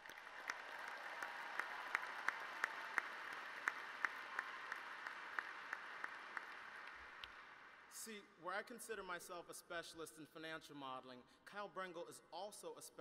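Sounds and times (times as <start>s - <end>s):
person clapping close by: 0.0s - 7.4s
audience applauding: 0.0s - 7.9s.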